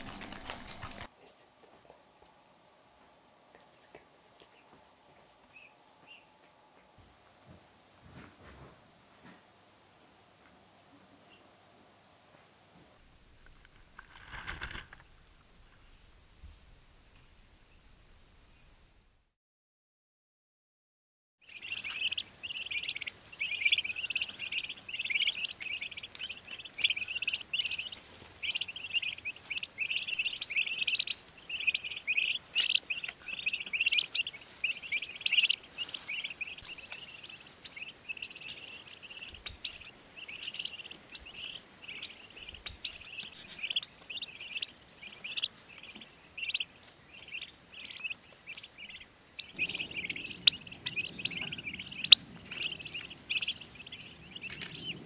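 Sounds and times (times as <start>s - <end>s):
turkey poults peeping: 0.0s - 1.1s, 4.5s - 7.0s, 21.4s - 55.0s.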